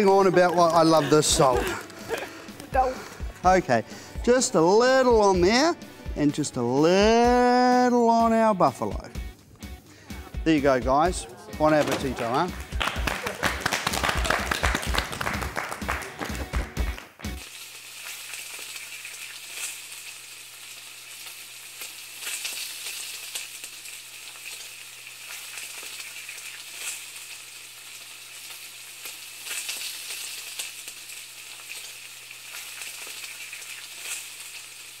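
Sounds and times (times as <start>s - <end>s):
sizzling hiss with crackles: 0.0s - 8.0s, 17.2s - 35.0s.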